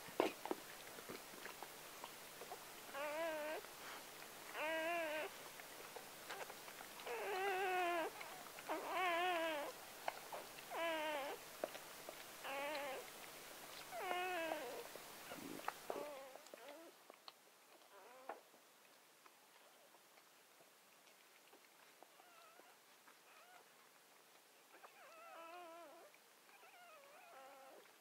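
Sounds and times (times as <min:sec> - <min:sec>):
puppy crying: 0:02.9 - 0:03.7, 0:04.5 - 0:05.4, 0:06.3 - 0:11.4, 0:12.4 - 0:13.1, 0:13.9 - 0:17.0, 0:17.9 - 0:18.4, 0:24.7 - 0:27.9.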